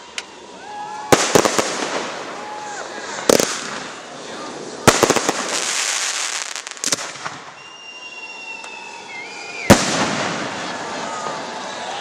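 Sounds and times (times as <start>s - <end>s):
crackling hiss of stars: 0.0s - 12.0s
small firework pops: 3.3s - 4.0s, 4.9s - 7.7s, 9.6s - 10.7s
sharp firework bang: 9.7s - 10.8s.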